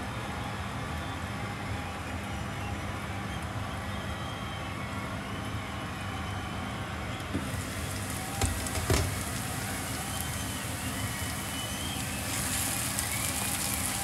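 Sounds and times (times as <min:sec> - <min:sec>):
food sizzling in frying pan: 0:07.4 - 0:14.0.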